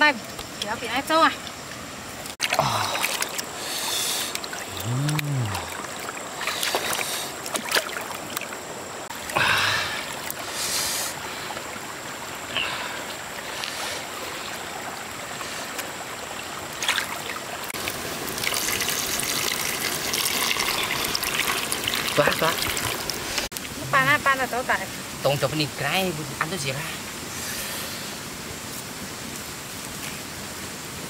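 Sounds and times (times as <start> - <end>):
water splashing and trickling: 0.0 - 31.0
stream of water pouring: 1.4 - 24.1.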